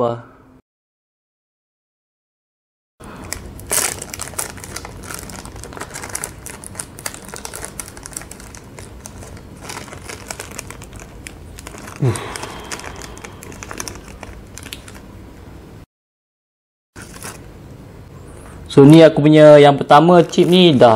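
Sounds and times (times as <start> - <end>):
foil pouch crinkling: 3.0 - 15.1, 17.0 - 17.5, 20.1 - 20.9.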